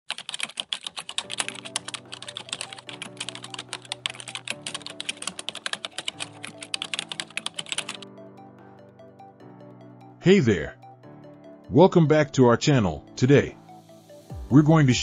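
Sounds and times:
fast keyboard typing: 0.1 - 8.1
background music low notes: 0.2 - 15.0.

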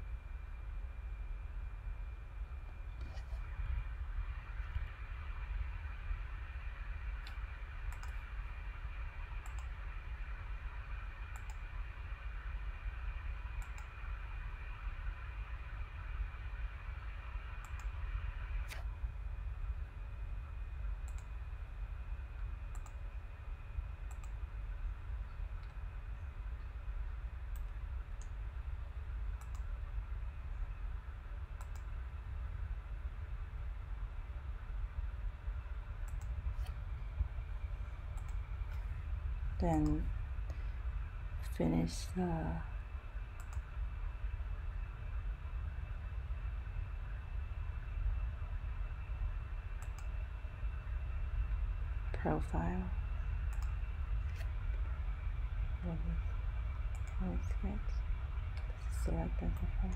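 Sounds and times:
steady low hum: 0.0 - 59.9
computer mouse clicking: 7.2 - 8.2, 9.4 - 9.8, 11.3 - 11.7, 13.6 - 13.9, 17.6 - 18.0, 21.0 - 21.3, 22.7 - 23.1, 24.0 - 24.4, 29.4 - 29.7, 31.6 - 31.9, 36.0 - 36.8, 38.1 - 38.8, 43.4 - 43.7, 49.8 - 50.2, 53.5 - 54.8, 56.9 - 57.2.

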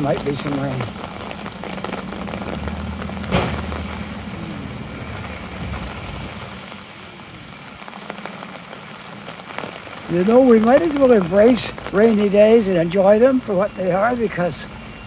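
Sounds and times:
vehicle engine running: 0.0 - 6.7
rain on wet pavement: 0.0 - 15.0.

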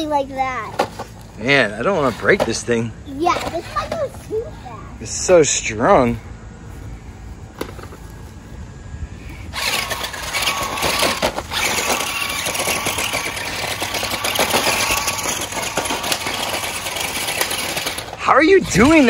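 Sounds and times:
toy truck motors whirring: 0.0 - 4.6, 9.5 - 19.0.

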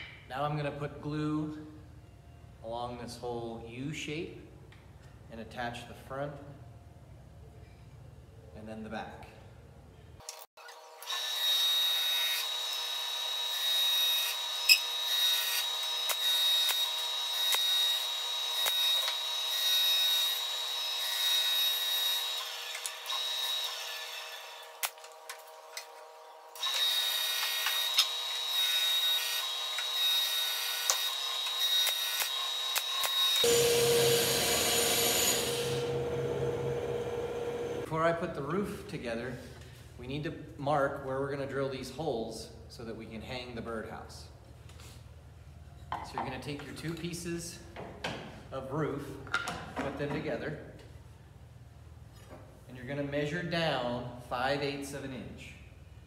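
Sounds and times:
brad nailer clicks: 30.9 - 33.5
steady high whine: 33.4 - 38.0.

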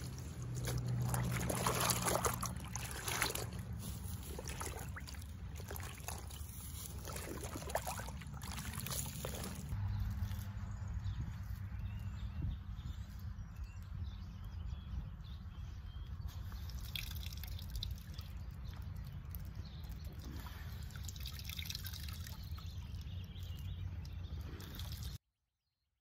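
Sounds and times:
water dripping into a tub: 0.0 - 9.8, 16.6 - 25.2
water splashing: 0.0 - 9.8.

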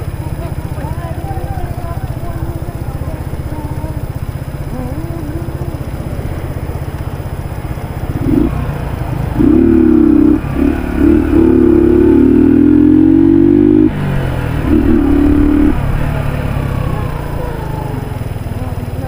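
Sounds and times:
motorcycle engine idling and revving: 0.0 - 19.0.

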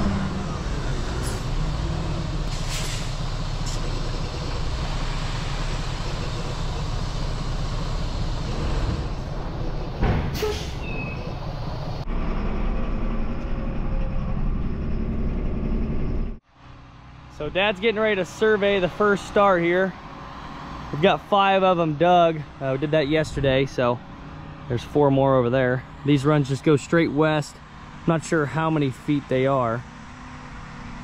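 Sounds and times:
tractor engine from inside cab: 0.0 - 16.5
diesel truck engine running: 0.0 - 31.0
short air hisses: 2.5 - 3.2.

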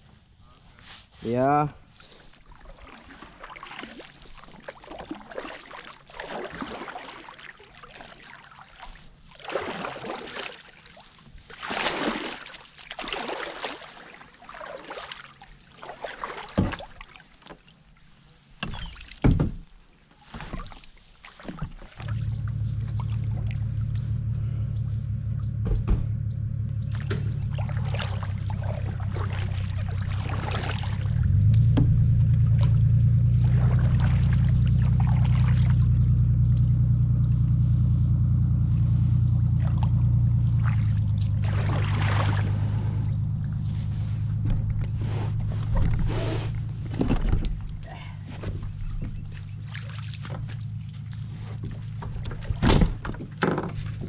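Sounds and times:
paddle swishing through water: 0.1 - 25.3, 26.8 - 36.8, 38.6 - 54.0
paddle knocking on kayak: 16.4 - 17.0, 25.6 - 26.3, 26.9 - 32.8, 51.6 - 54.0
steady low rumble: 22.0 - 53.0.

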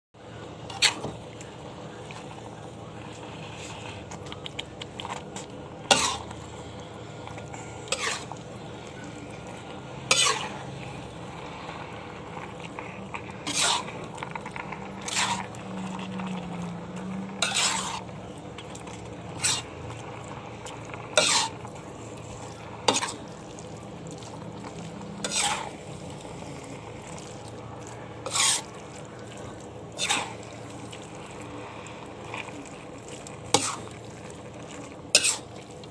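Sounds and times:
spatula scraping metal pan: 0.7 - 1.2, 5.9 - 6.4, 7.5 - 8.4, 10.0 - 10.8, 12.7 - 19.8, 21.1 - 21.7, 22.5 - 23.3, 24.3 - 25.9, 28.2 - 30.8, 33.4 - 34.0, 35.1 - 35.5.

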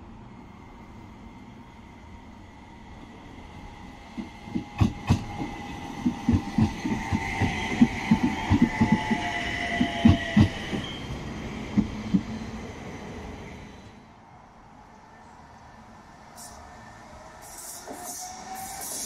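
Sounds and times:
tram rumble: 0.0 - 19.0
tram wheels clunking over joints: 4.1 - 12.6
high whine: 4.4 - 11.1.

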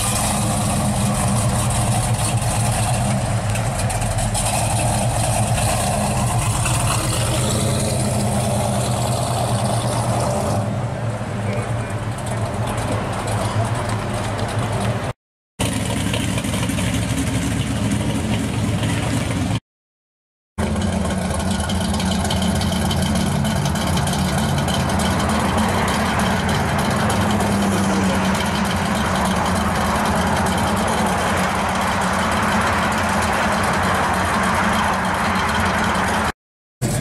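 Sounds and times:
car engines idling: 0.0 - 19.6, 20.6 - 37.0.

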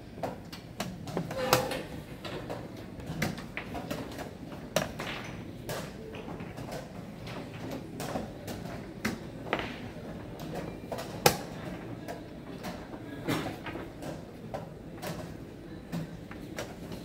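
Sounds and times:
low room murmur: 0.0 - 17.0.

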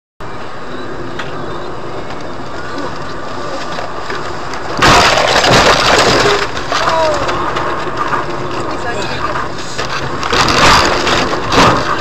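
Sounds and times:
car road and engine noise: 0.2 - 12.0
loud burst of noise: 4.2 - 12.0.

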